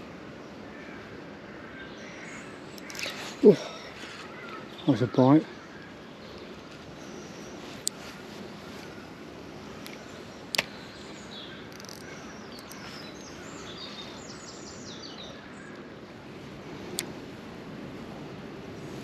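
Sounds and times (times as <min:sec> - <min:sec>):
small birds chirping: 0:00.0 - 0:17.2
sharp clicks: 0:09.8 - 0:10.8, 0:11.7 - 0:12.8.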